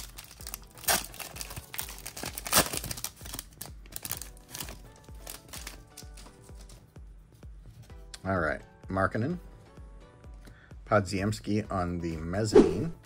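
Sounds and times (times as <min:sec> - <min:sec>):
foil wrapper crinkling and tearing: 0:00.0 - 0:06.7.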